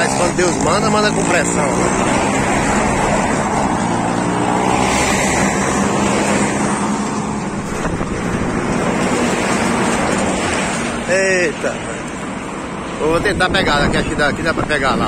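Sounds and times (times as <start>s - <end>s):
wind buffeting microphone: 2.0s - 10.8s, 13.0s - 15.0s.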